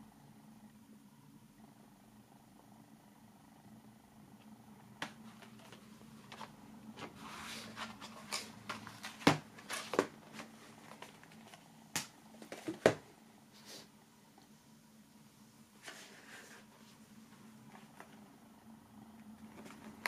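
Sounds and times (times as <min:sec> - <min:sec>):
packaging rustling and clicking: 0:07.6 - 0:13.0.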